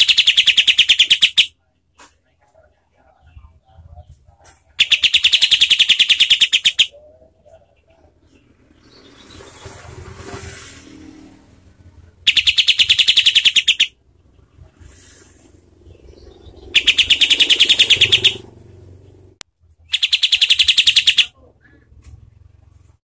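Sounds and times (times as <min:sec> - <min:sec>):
bird rattling trills: 0:00.0 - 0:01.5, 0:04.8 - 0:06.9, 0:12.3 - 0:14.0, 0:16.2 - 0:18.5, 0:19.9 - 0:21.3.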